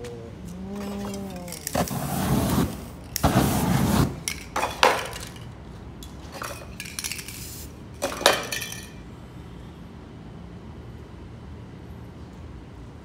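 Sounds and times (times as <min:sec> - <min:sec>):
metal spray cans clinking: 0:00.8 - 0:09.0.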